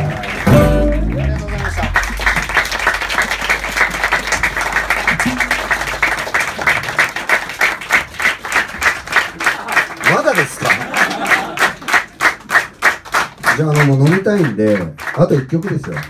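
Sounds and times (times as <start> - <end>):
audience applauding: 0.0 - 16.0
band low note ringing: 0.5 - 3.3, 5.0 - 6.1.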